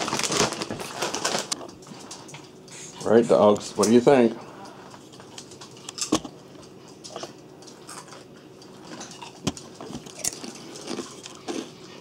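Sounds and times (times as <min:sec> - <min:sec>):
potato chips crunching: 0:00.0 - 0:01.7, 0:08.8 - 0:12.0.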